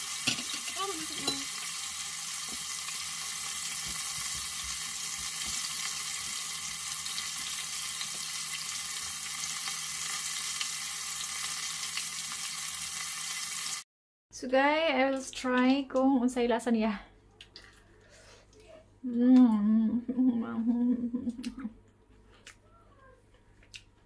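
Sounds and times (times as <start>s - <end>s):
oil sizzling deep-frying: 0.0s - 13.8s.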